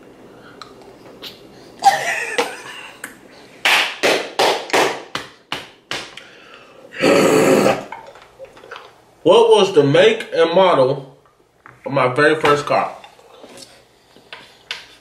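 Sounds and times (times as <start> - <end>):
hands clapping: 2.4 - 6.2.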